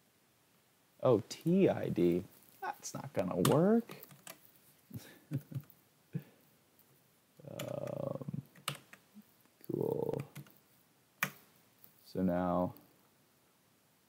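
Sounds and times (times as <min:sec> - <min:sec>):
person speaking a word: 0:07.4 - 0:08.4, 0:09.7 - 0:10.3
keyboard keys clicking: 0:07.5 - 0:09.0.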